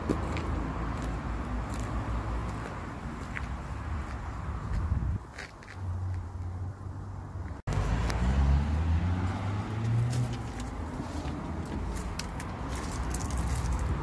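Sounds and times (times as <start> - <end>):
footsteps on leaves: 10.0 - 14.0.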